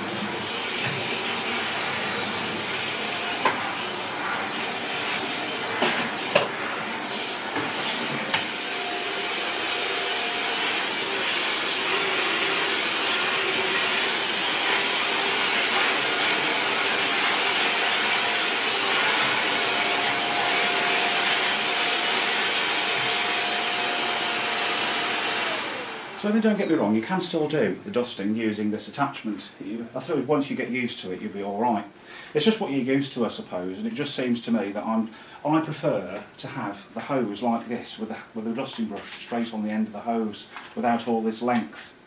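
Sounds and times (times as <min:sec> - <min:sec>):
vacuum cleaner running: 0:00.0 - 0:27.0.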